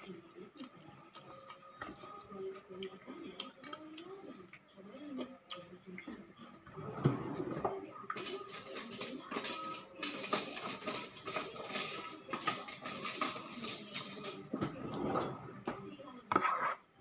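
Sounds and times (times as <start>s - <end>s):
rummaging rattles in a container: 8.2s - 14.4s.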